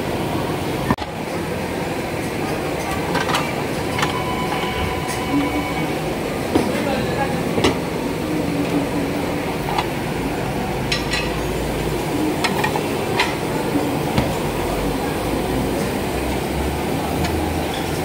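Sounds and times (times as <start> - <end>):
restaurant din: 0.0 - 18.0
plates clinking: 10.8 - 11.6.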